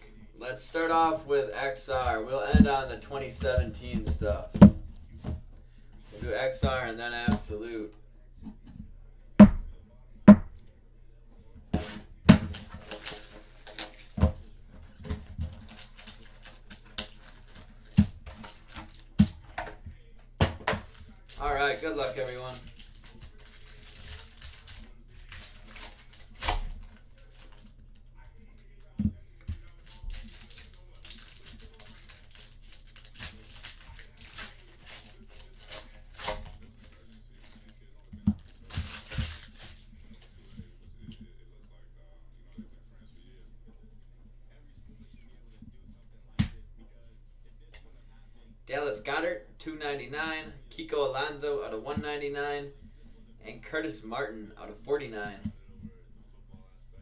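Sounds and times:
wrapping crinkling: 11.8s - 14.2s, 15.4s - 19.5s, 20.8s - 27.7s, 29.6s - 40.3s.

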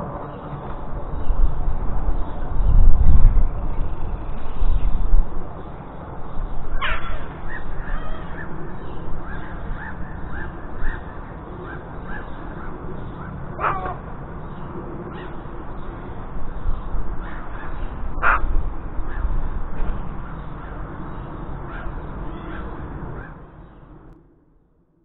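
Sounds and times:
steady low rumble: 0.0s - 25.0s
crow calling harshly: 6.7s - 14.1s, 17.2s - 19.4s, 21.7s - 23.5s.

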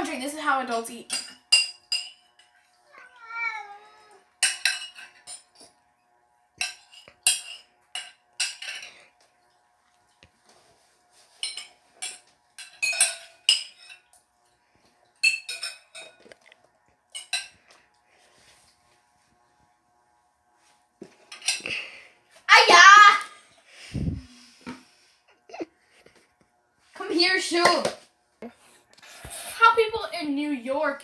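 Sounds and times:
metal spoon clinking on ceramic bowl: 1.1s - 2.5s, 4.4s - 5.5s, 6.6s - 8.9s, 11.4s - 14.1s.

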